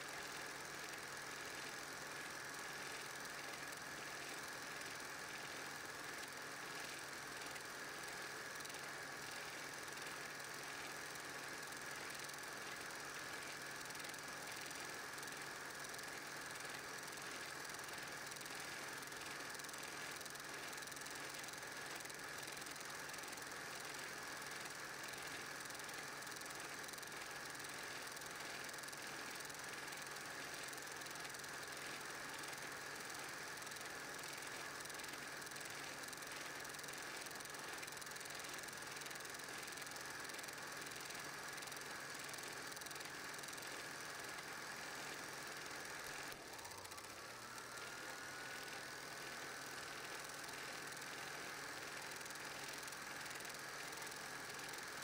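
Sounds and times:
film projector clatter: 0.0s - 55.0s.

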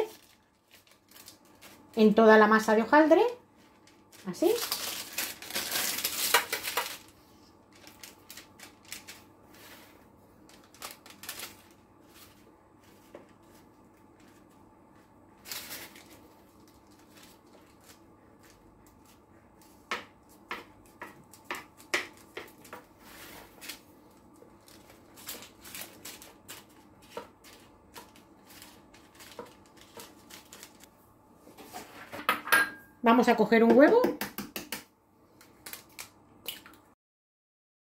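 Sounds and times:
parchment paper rustling: 0.0s - 2.1s, 3.0s - 30.9s.

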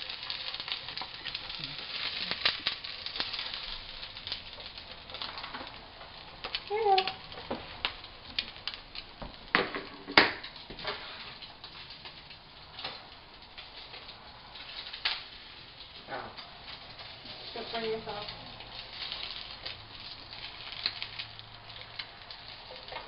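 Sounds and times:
eggs frying crackling: 0.0s - 23.0s.

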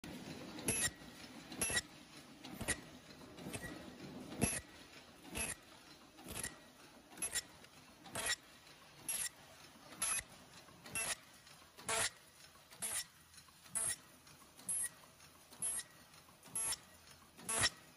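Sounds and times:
steady mechanical hum: 0.0s - 17.9s
machine mechanism clacking: 0.1s - 17.9s.

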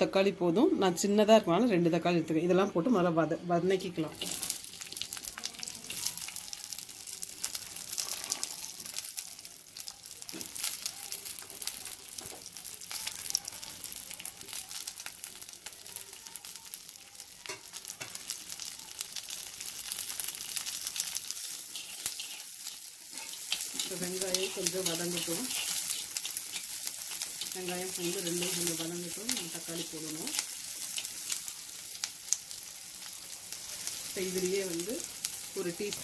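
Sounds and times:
onions sizzling in hot oil: 2.0s - 36.0s.

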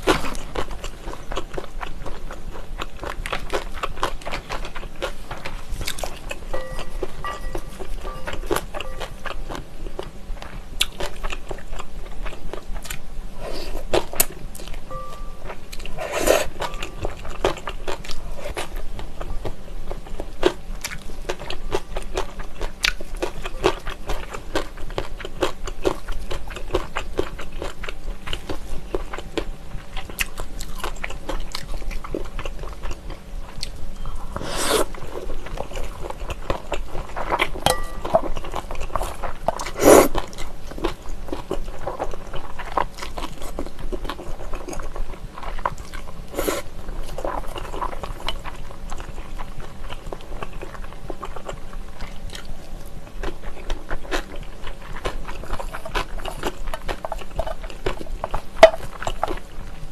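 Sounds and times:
wet chewing and crunching: 0.0s - 59.9s
slurping noodles: 34.4s - 35.0s, 39.7s - 40.2s.

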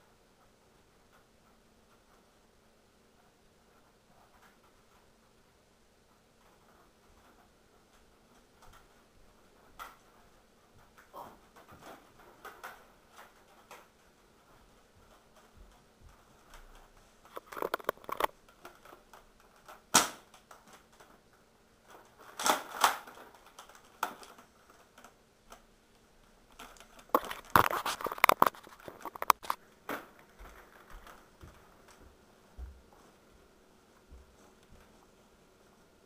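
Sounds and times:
plastic clicking and clattering: 9.6s - 32.0s.

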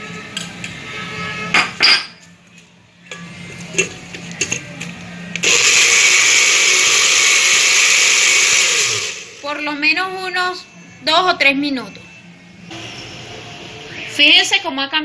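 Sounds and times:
blender running: 5.4s - 9.5s.

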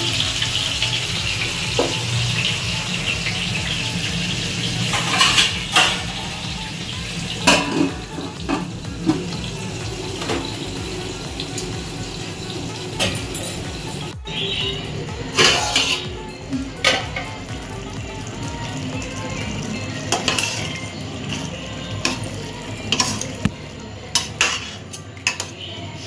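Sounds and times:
vegetables sizzling in oil: 0.0s - 14.2s, 17.1s - 26.0s
steel lid clattering on pan: 4.9s - 6.1s.

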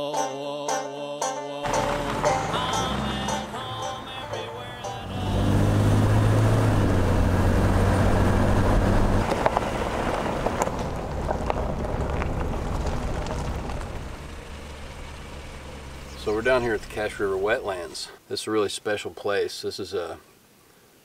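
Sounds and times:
car engine hum: 1.7s - 18.0s
road noise: 1.7s - 18.2s.

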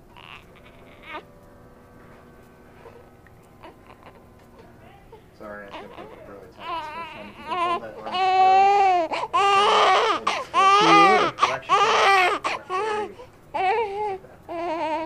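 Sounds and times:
baby crying: 0.1s - 1.3s, 3.6s - 4.3s, 5.1s - 15.0s.

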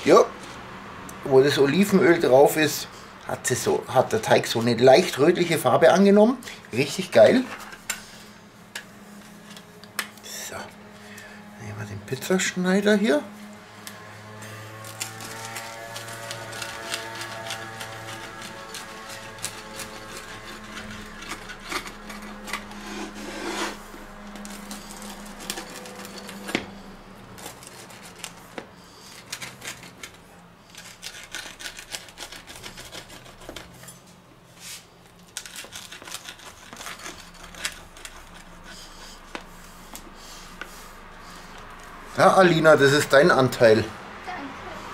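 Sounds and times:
pizza cutter crunching through crust: 12.8s - 34.0s, 34.7s - 41.9s.

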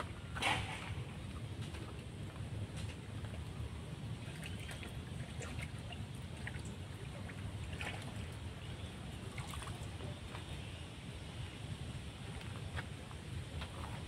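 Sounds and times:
water splashes: 0.0s - 2.1s, 3.0s - 10.6s.

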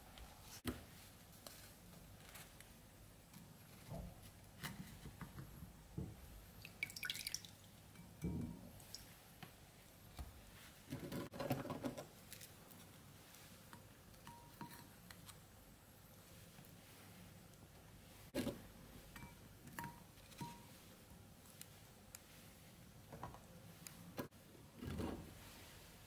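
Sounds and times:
faint drips: 6.6s - 8.1s.

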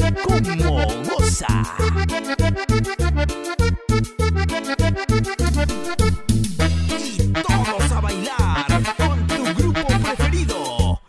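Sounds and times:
pitch-bending melody line: 0.0s - 10.2s
bass line: 0.0s - 11.0s
percussion: 5.2s - 11.0s.

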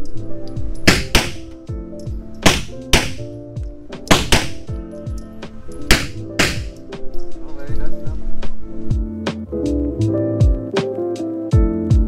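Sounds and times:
background music: 0.0s - 12.0s
pistol shots echoing indoors: 0.9s - 1.5s, 2.4s - 3.4s, 4.1s - 4.7s, 5.9s - 6.8s.

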